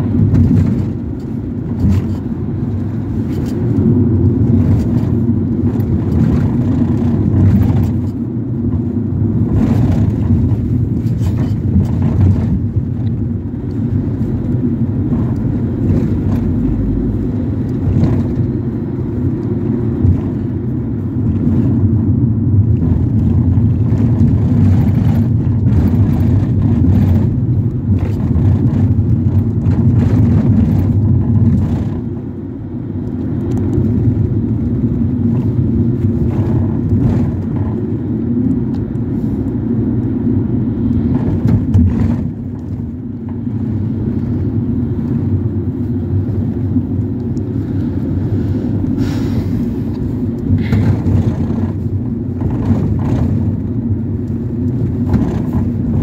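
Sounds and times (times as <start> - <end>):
engine and road rumble: 0.0 - 56.0
rattles and knocks: 50.5 - 56.0.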